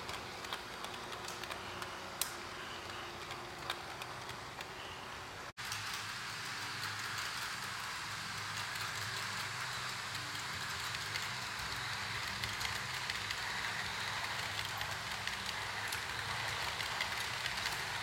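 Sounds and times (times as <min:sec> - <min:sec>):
metal wheels rolling on rails: 0:05.6 - 0:18.0
model train motor hum: 0:05.6 - 0:18.0.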